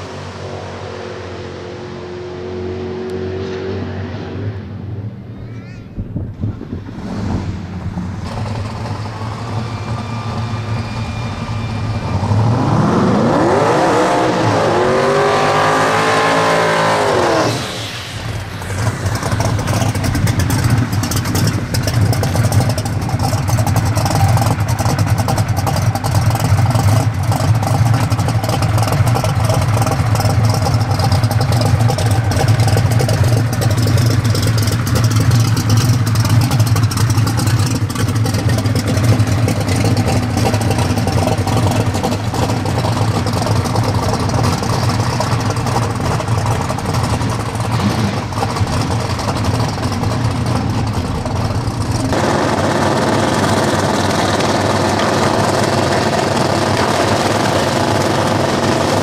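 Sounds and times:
engine revving: 0.0s - 4.9s, 6.8s - 59.0s
car engine idling choppily: 17.8s - 59.0s.

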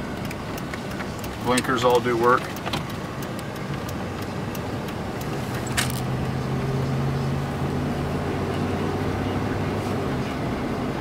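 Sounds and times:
engine drone: 0.0s - 11.0s
road noise: 0.0s - 11.0s
sharp clicks: 0.1s - 6.2s.

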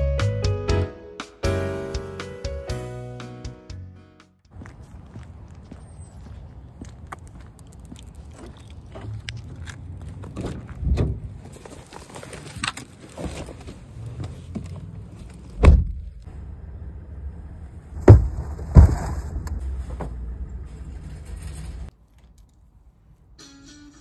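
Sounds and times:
footsteps on asphalt: 4.5s - 15.5s
heavy thumps of car loading: 18.0s - 20.2s.

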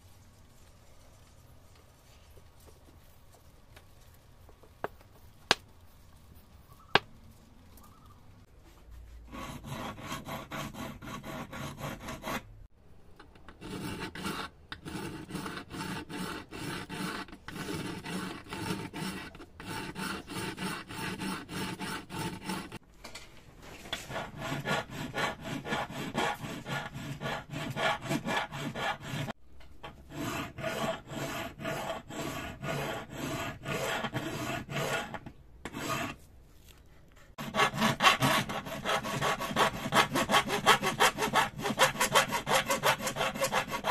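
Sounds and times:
hand file rasping on metal: 9.2s - 12.5s, 13.5s - 22.8s, 24.1s - 36.2s, 37.3s - 43.9s.

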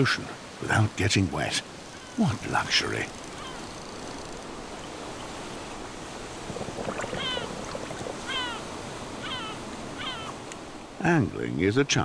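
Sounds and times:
surf washing over rocks: 0.0s - 12.0s
bird calls: 1.8s - 5.9s, 6.8s - 10.8s.

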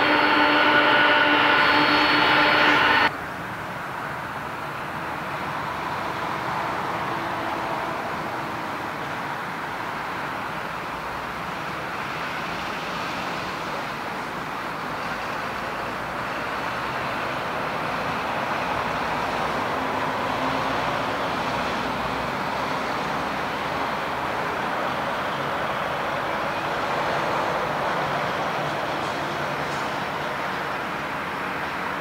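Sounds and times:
jet engines rushing: 0.0s - 3.1s.

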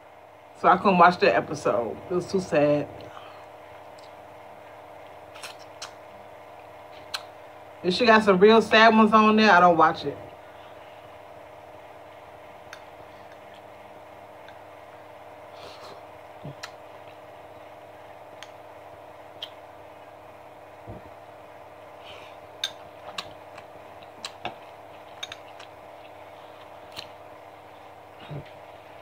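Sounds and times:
steady background hum: 0.0s - 29.0s
eating sounds: 15.5s - 17.3s, 21.9s - 28.8s.

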